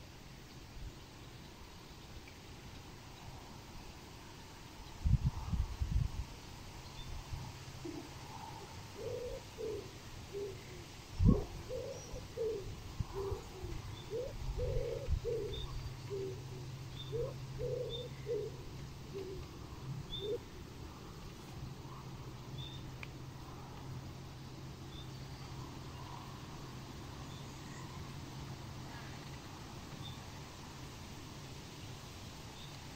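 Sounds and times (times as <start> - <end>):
low cooing calls: 7.4 - 24.0.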